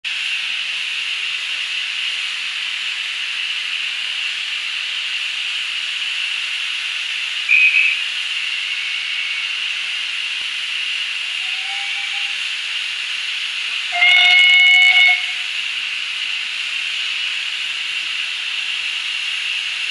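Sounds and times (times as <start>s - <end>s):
steam locomotive hissing: 0.1s - 19.9s
high steam whistle toot: 7.5s - 9.7s, 11.2s - 12.5s, 13.9s - 15.6s.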